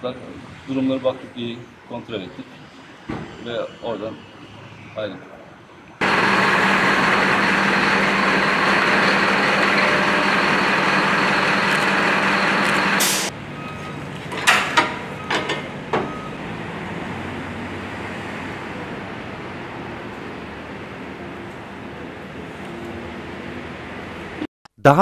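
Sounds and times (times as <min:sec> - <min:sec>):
loud mechanical drone: 0:06.0 - 0:13.3.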